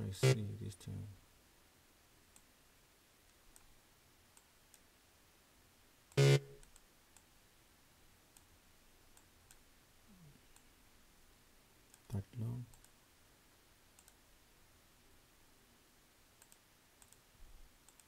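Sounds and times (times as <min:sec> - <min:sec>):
faint mouse clicks: 0:03.2 - 0:03.7, 0:04.3 - 0:04.9, 0:06.6 - 0:07.3, 0:08.3 - 0:08.5, 0:09.1 - 0:09.7, 0:11.9 - 0:13.0, 0:13.9 - 0:14.2, 0:16.4 - 0:18.0.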